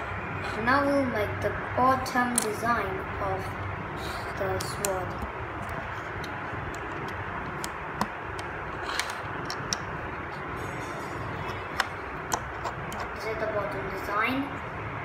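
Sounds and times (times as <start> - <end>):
plastic bricks clicking together: 4.6 - 9.9.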